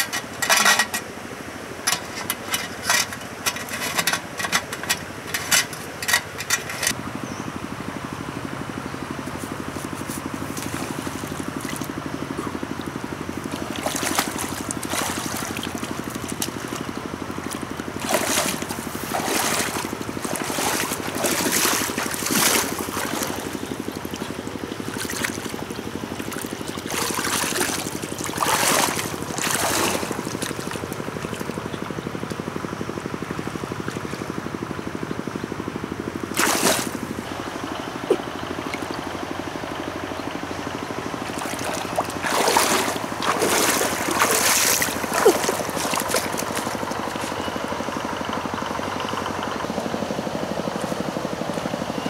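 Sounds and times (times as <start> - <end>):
small gasoline engine running: 0.0 - 52.0
water splashing: 9.7 - 31.6, 36.3 - 37.4, 41.1 - 47.4.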